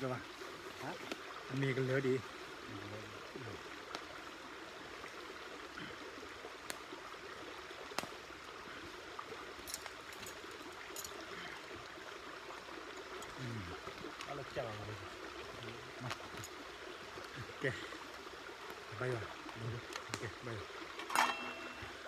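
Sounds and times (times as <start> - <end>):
rushing water: 0.0 - 22.0
metal utensil clinking on pots: 21.0 - 21.9.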